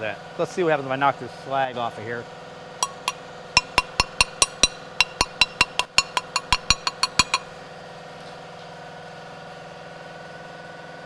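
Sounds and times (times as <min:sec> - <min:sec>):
ringing metal knocks: 0:02.8 - 0:07.6
steady machine hum: 0:02.8 - 0:08.0.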